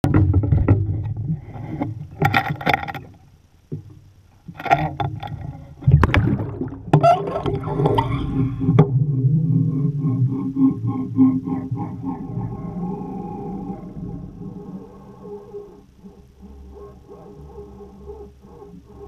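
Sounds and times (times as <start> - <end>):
water sloshing and knocks on hull: 0.0 - 9.0
underwater bubbling and gurgling: 0.0 - 19.0
wind and water noise: 0.0 - 19.0.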